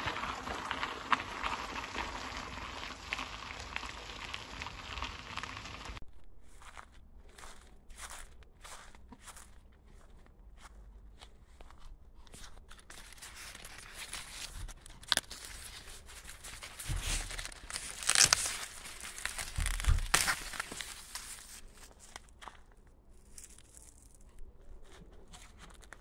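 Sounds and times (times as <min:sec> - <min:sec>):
dry leaves rustling: 0:00.0 - 0:06.0, 0:12.7 - 0:22.4, 0:23.1 - 0:25.0
tearing crackles: 0:00.0 - 0:06.0, 0:12.3 - 0:26.0.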